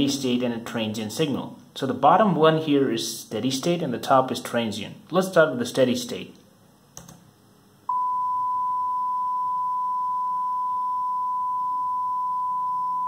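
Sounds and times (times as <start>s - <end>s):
sine wave test tone: 7.9s - 13.0s.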